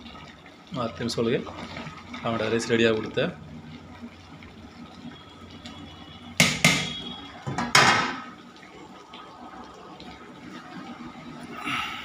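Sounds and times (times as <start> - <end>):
metal pot lid clattering: 7.5 - 8.2.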